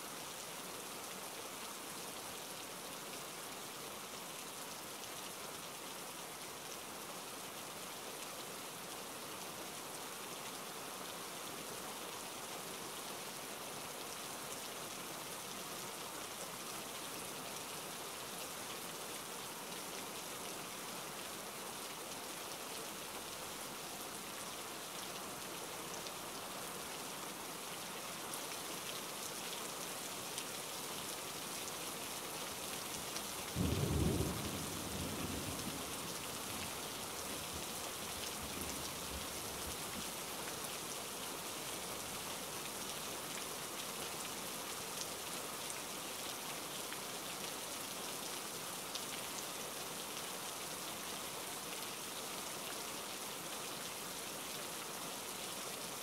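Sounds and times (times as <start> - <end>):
steady rain falling: 0.0 - 56.0
low rumble of thunder: 33.6 - 36.2.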